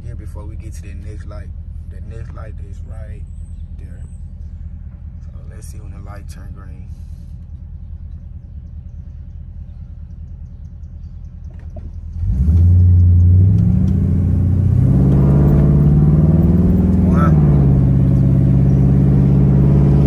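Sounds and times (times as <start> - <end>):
car engine idling: 0.0 - 20.0
car accelerating hard: 12.1 - 20.0.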